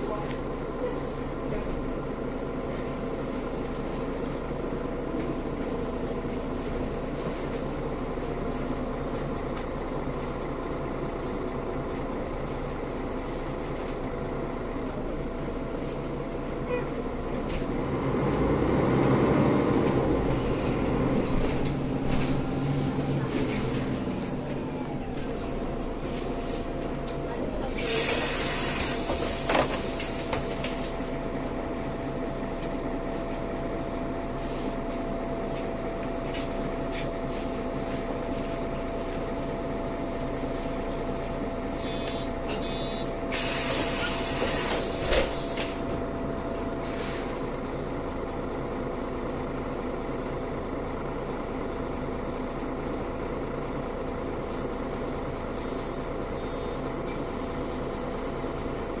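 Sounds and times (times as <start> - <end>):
bus diesel engine humming: 0.0 - 59.0
compressed air hissing: 43.3 - 45.6.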